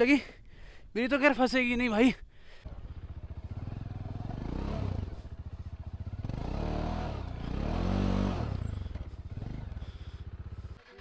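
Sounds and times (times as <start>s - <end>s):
motorcycle engine revving: 2.6s - 11.0s.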